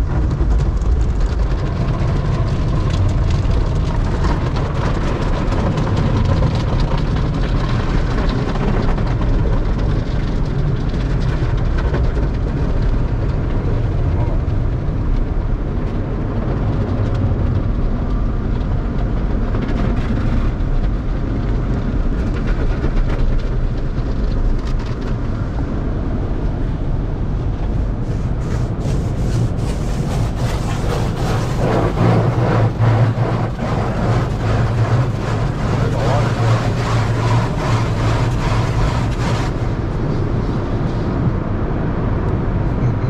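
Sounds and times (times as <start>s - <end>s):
steady low rumble: 0.0s - 43.0s
wash cloths slapping car body: 28.0s - 39.7s
water and foam spraying: 28.0s - 40.7s.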